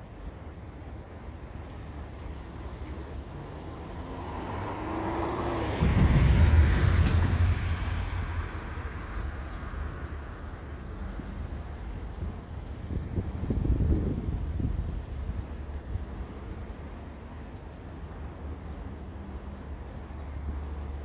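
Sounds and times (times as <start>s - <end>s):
road vehicle passing by: 2.2s - 11.9s.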